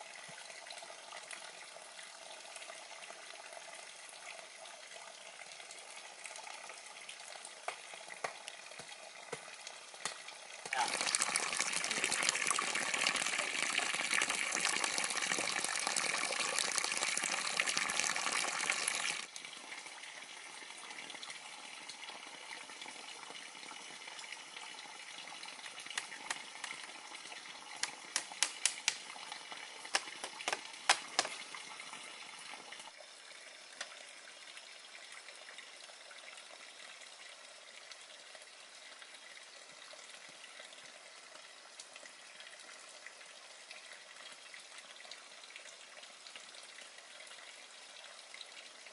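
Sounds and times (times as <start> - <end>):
running water splashing: 7.6 - 19.3, 25.3 - 32.7
sharp clicks and taps: 27.8 - 29.0, 29.9 - 31.4.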